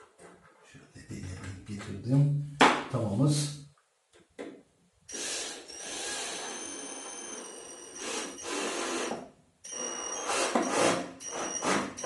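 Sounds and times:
cordless drill whining: 5.1 - 12.0.

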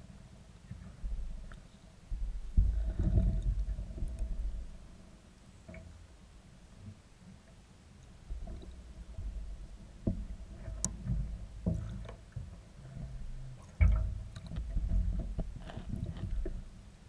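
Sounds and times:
muffled water churning: 0.0 - 17.0
underwater knocks and thumps: 0.6 - 5.0, 8.2 - 16.8.

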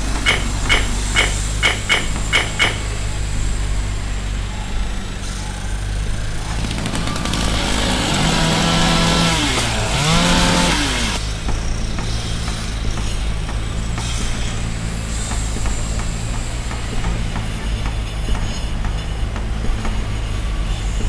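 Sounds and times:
chainsaw cutting log: 6.4 - 11.2.

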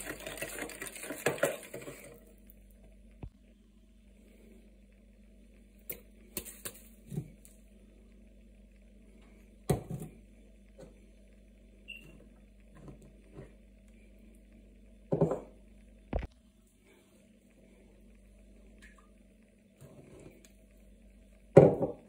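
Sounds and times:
faint steady hum: 0.0 - 22.0
kitchenware knocks on counter: 21.6 - 22.0.

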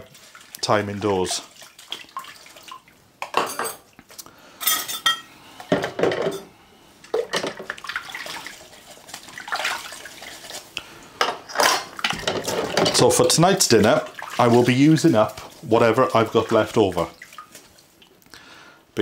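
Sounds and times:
water splashing: 0.0 - 3.1, 7.1 - 10.8, 11.5 - 18.2
dishes and cutlery clinking: 3.2 - 3.9, 4.6 - 6.5, 11.2 - 13.2.

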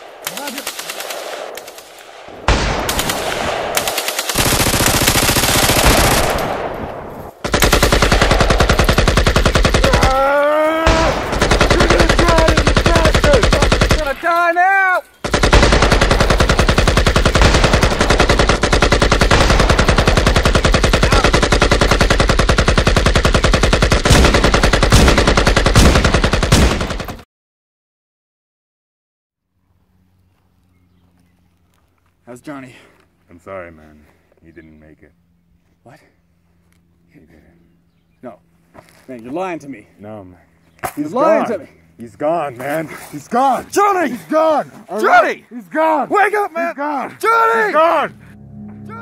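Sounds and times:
automatic gunfire: 0.2 - 6.7, 7.4 - 10.2, 10.9 - 14.2, 15.2 - 27.2
man shouting: 9.8 - 15.0, 41.1 - 41.7, 43.5 - 48.2.

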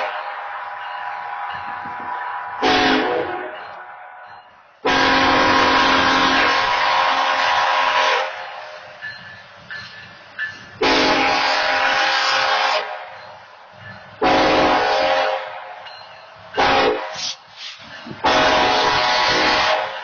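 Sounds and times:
locomotive air horn blasts: 2.6 - 3.6, 4.8 - 8.5, 10.8 - 13.1, 14.2 - 15.6, 16.6 - 17.5, 18.2 - 20.0.

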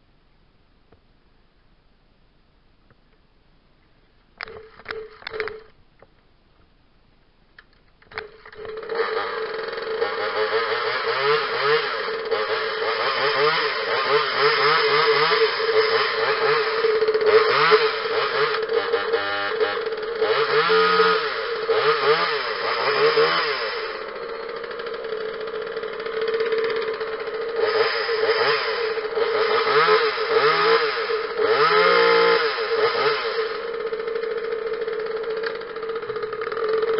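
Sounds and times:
chainsaw pull-start: 4.4 - 5.7, 8.1 - 36.9
chainsaw engine revving: 8.1 - 36.9.

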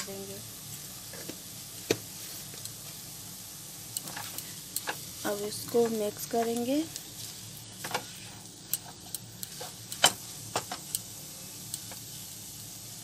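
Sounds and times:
spatula scraping a pan: 7.2 - 10.2.

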